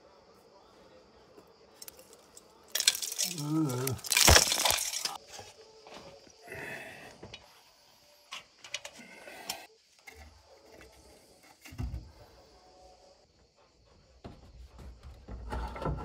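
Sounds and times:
debris falling: 1.8s - 5.2s.

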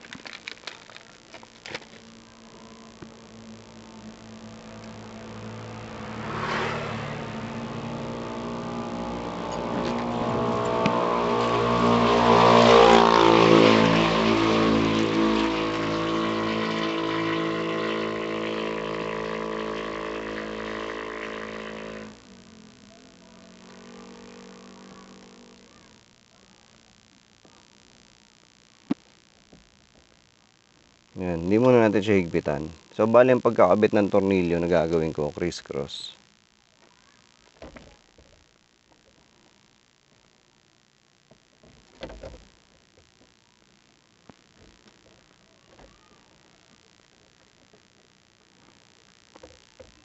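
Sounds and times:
vehicle engine running: 0.6s - 26.0s.

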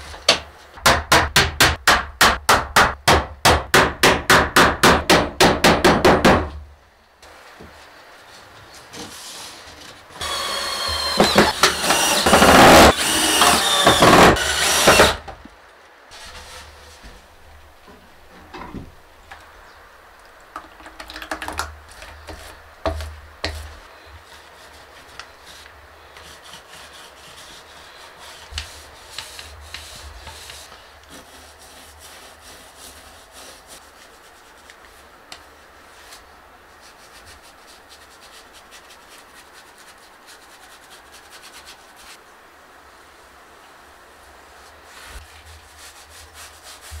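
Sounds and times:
paintbrush scratching on wood: 22.2s - 35.1s, 36.8s - 42.2s, 44.9s - 47.0s.

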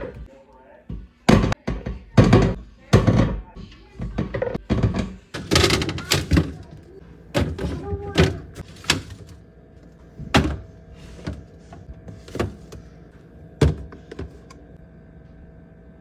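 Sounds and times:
containers knocking on glass shelf: 13.6s - 14.4s.

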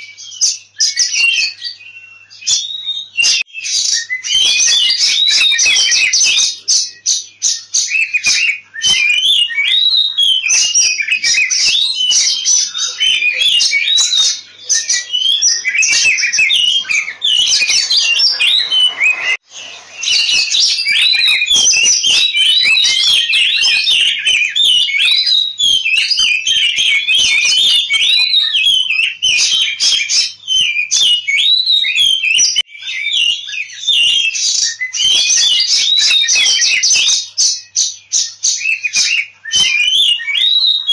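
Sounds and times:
magpie-robin singing whistles and chirps: 0.0s - 40.9s.

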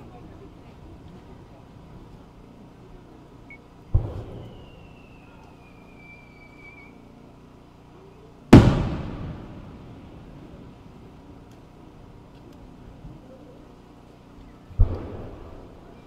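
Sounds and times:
firework mortar thud: 3.9s - 4.8s, 8.5s - 10.2s
firework burst echoing: 3.9s - 6.8s, 8.5s - 10.8s, 14.8s - 15.8s
firework whistle falling in pitch: 4.2s - 7.0s.

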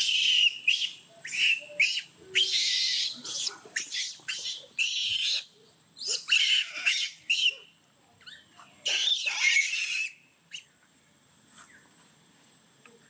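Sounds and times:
macaque screaming: 0.0s - 7.7s, 8.3s - 10.2s.

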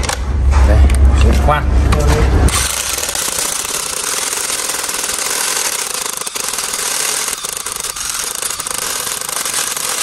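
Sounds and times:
impact wrench hammering into brick: 2.5s - 10.0s.

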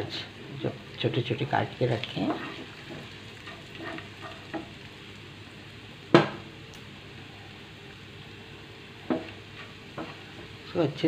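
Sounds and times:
garlic sizzling in hot oil: 0.0s - 11.0s
spatula knocking on pan: 9.0s - 9.4s.

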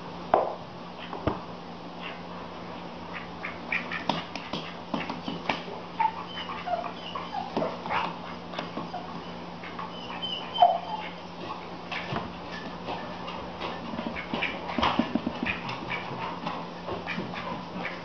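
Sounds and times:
animals scuffling on wooden floor: 4.1s - 18.0s
squeaky animal cries: 6.0s - 7.6s, 9.0s - 11.2s.

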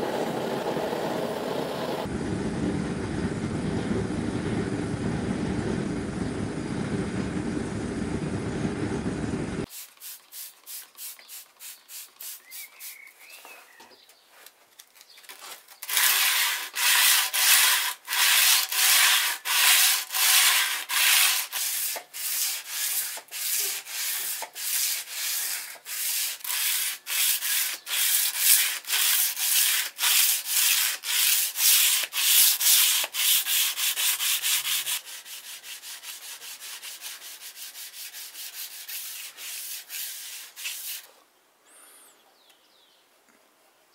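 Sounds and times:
furnace roaring: 0.0s - 9.7s
sanding sword blade: 15.8s - 41.1s.

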